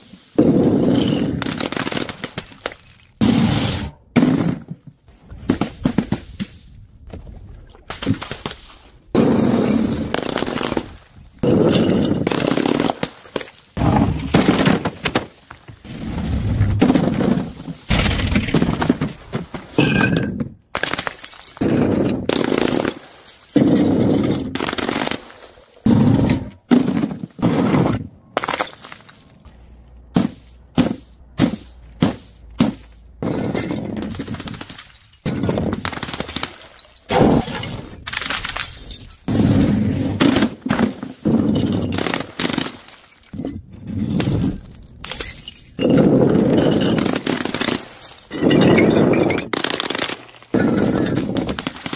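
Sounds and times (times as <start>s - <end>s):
broken glass crunching: 20.9s - 22.5s, 33.5s - 39.5s, 41.4s - 43.4s
glass crashes: 21.1s - 22.3s, 33.2s - 39.7s, 44.1s - 51.9s.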